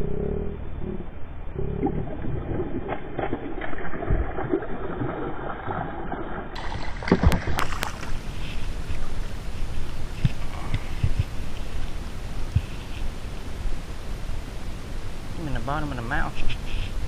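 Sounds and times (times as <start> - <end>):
fish splashing at water surface: 2.6 - 9.1.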